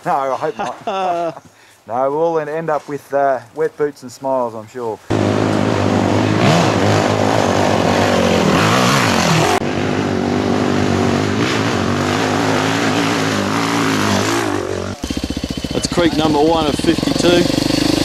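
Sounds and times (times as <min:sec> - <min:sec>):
trail bike engines revving: 0:05.1 - 0:18.0.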